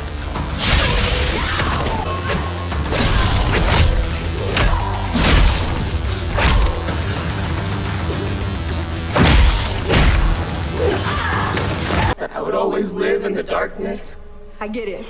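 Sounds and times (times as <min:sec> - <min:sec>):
fight hits and crashes: 0:02.9 - 0:06.9, 0:09.1 - 0:10.5.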